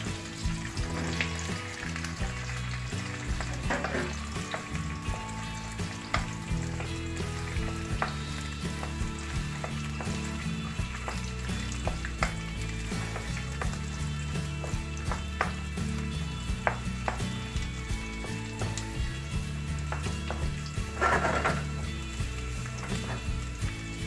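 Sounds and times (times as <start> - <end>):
vegetables sizzling in hot oil: 0.0 - 24.0
wooden spatula scraping a wok: 3.3 - 4.7, 20.0 - 21.9.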